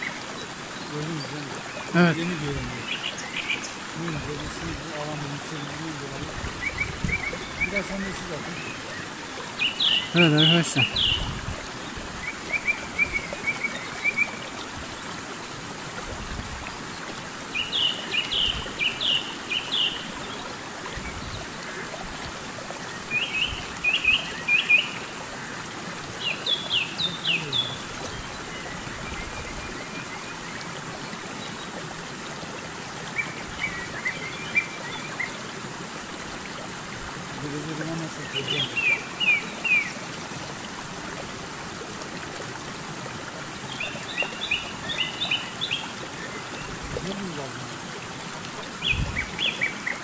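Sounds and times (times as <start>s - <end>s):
songbird chirping: 0.0s - 14.6s, 26.2s - 31.7s, 33.1s - 35.4s, 37.4s - 40.0s
stream water running: 0.0s - 50.0s.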